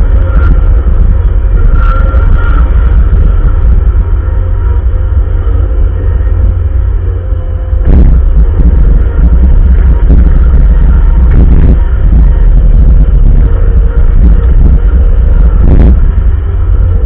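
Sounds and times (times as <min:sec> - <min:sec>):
loader engine rumbling: 0:00.0 - 0:17.0.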